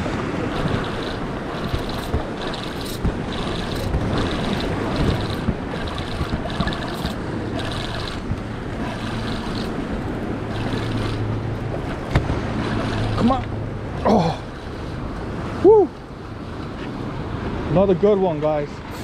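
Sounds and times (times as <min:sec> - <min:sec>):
wind buffeting microphone: 0:00.0 - 0:13.9
surf washing: 0:00.0 - 0:19.0
fishing reel cranking: 0:00.6 - 0:08.2, 0:08.8 - 0:09.8.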